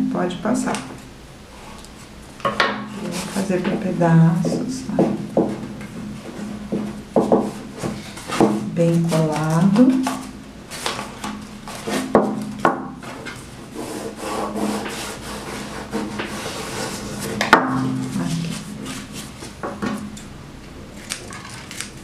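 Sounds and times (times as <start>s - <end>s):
paper rustling: 7.8s - 12.1s, 21.0s - 22.0s
scissors snipping paper: 21.0s - 22.0s.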